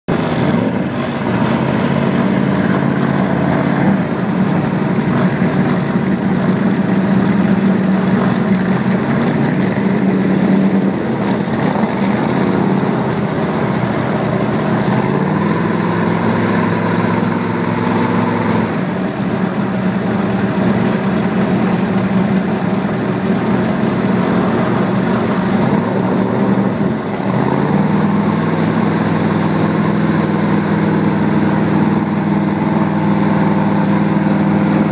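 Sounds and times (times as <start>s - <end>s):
engine running: 0.1s - 34.9s.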